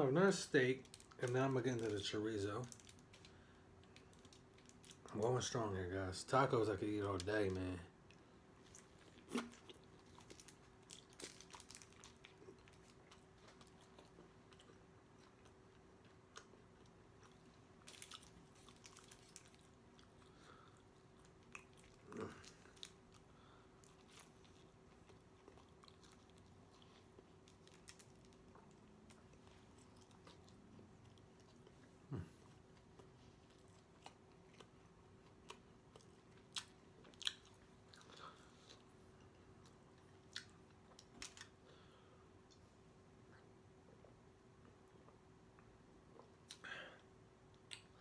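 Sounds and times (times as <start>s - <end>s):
biting and chewing taco: 7.2s - 41.8s.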